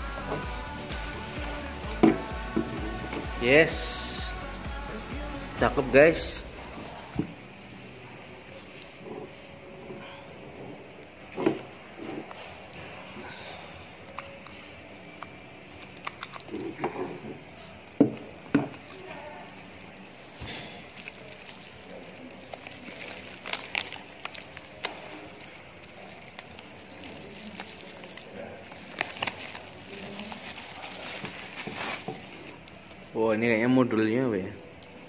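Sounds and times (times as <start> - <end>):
bubble wrap rustling and crinkling: 0.0 - 4.2, 18.7 - 33.5.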